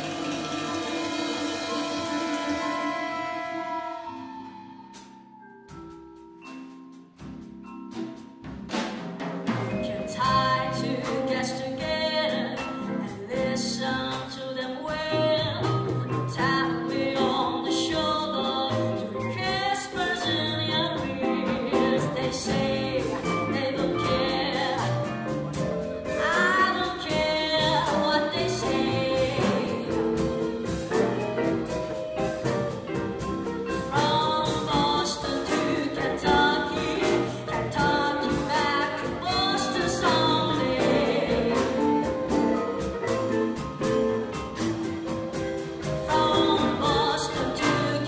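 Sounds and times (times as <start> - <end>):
horns: 0.0 - 5.3
double basses: 0.0 - 48.0
drum kit beat: 0.0 - 48.0
vibraphone: 3.9 - 11.8
person singing: 26.2 - 30.6, 33.6 - 43.5, 46.0 - 48.0.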